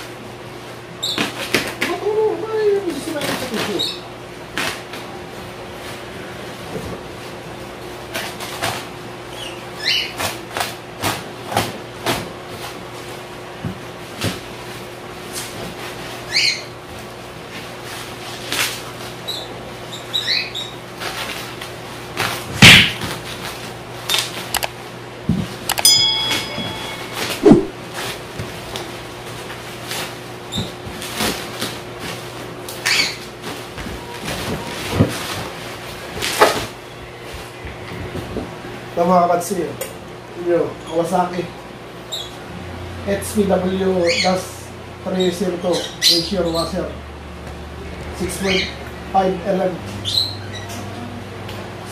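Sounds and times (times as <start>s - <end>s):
scattered clicks: 24.5s - 24.7s, 25.7s - 25.9s
bubble wrap crinkling: 27.1s - 36.8s.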